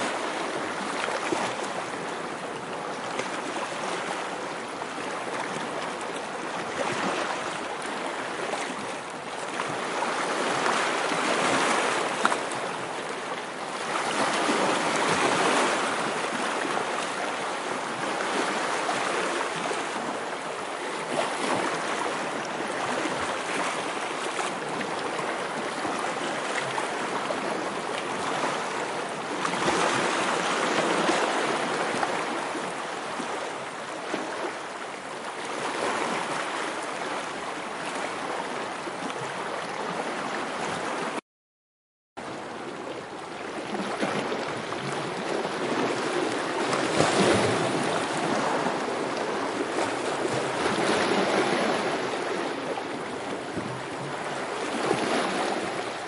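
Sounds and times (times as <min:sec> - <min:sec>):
sea waves crashing: 0:13.7 - 0:20.1, 0:43.6 - 0:56.0.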